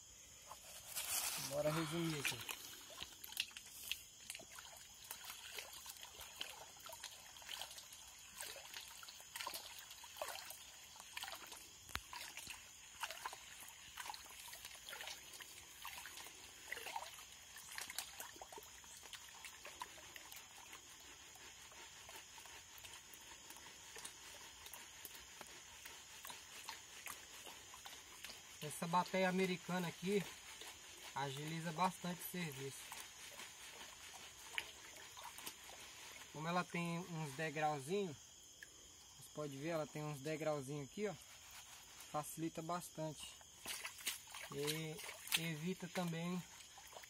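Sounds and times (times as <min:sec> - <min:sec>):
water sloshing and trickling: 0:00.4 - 0:47.0.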